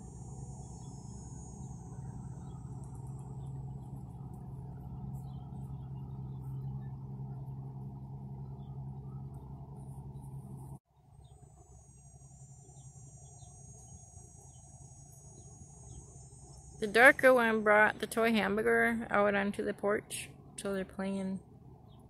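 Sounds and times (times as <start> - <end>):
high insect buzz: 0.0 - 8.7, 9.7 - 18.3
insects trilling: 0.0 - 8.7, 11.0 - 18.6
steady low hum: 0.0 - 22.0.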